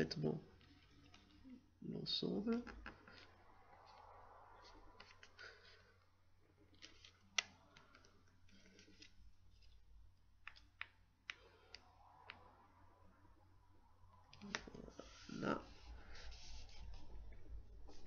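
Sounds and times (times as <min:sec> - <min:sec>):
paper clicks and rustles: 0:06.7 - 0:09.8.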